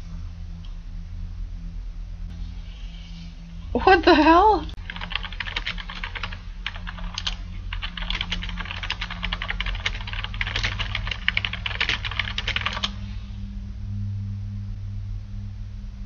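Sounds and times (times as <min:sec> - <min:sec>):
steady low hum: 0:00.0 - 0:16.0
computer keyboard typing: 0:04.8 - 0:13.0.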